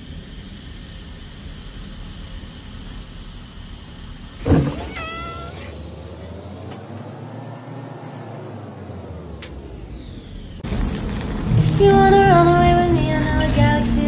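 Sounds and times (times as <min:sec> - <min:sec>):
thump: 0:04.4 - 0:05.1
cat meow: 0:04.6 - 0:05.8
faint rising and falling tone: 0:04.7 - 0:14.0.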